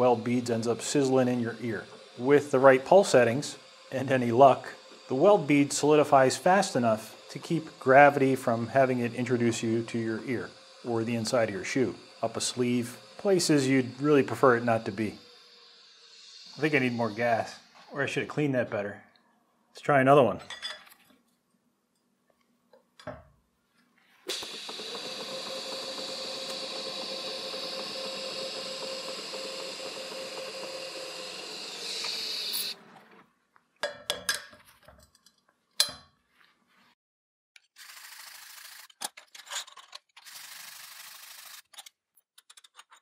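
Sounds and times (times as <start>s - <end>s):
welding arc buzzing: 0.0s - 18.3s, 24.2s - 33.2s, 37.8s - 39.0s, 40.3s - 41.7s.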